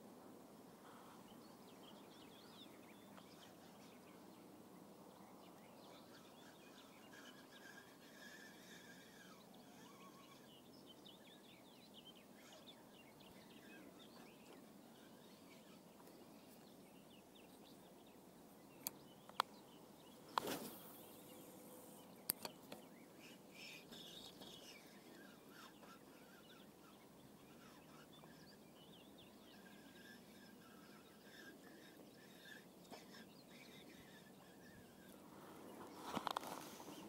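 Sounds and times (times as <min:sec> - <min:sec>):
faint bird chirps: 0:00.8 - 0:37.0.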